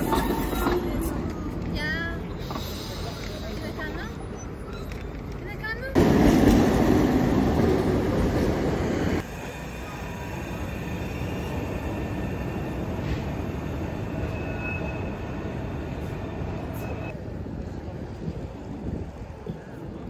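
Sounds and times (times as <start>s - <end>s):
train wheels rolling on rails: 0.0s - 20.0s
high wheel squeal: 9.3s - 17.1s.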